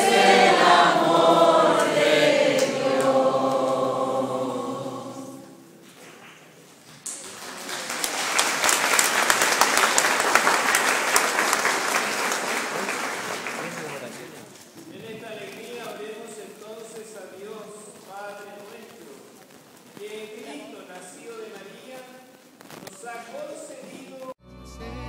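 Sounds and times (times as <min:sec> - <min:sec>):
congregation singing a hymn: 0:00.0 - 0:06.0
applause: 0:07.0 - 0:14.5.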